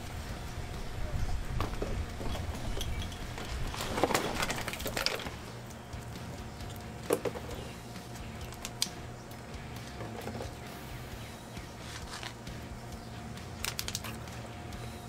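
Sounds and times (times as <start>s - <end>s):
plastic bottle crinkling: 3.4s - 5.4s.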